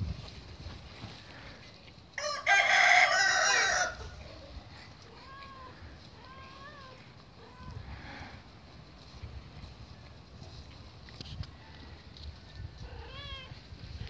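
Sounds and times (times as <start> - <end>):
rooster crowing: 2.2 - 4.2.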